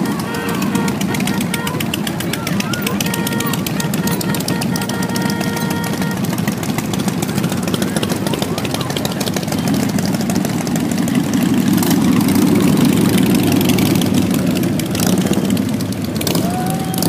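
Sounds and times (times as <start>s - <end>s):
higher steady tone: 0.0s - 10.2s
motorcycles riding past: 0.0s - 17.0s.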